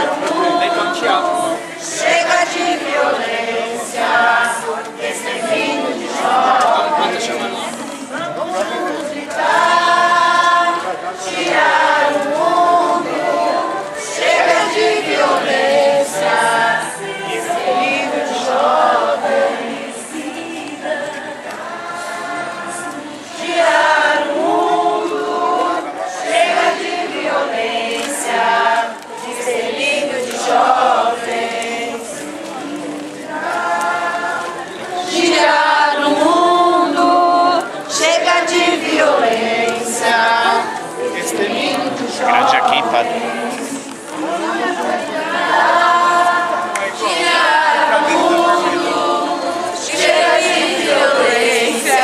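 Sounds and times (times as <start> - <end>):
group singing in chorus: 0.0 - 52.0.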